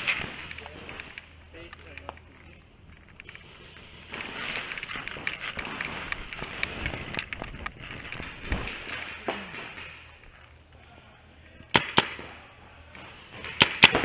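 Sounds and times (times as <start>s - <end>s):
gear rattling: 0.0s - 10.0s.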